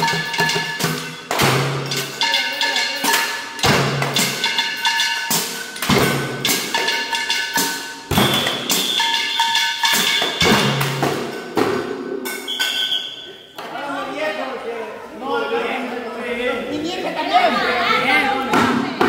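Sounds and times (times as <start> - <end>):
metal pots beaten rhythmically: 0.0 - 13.3.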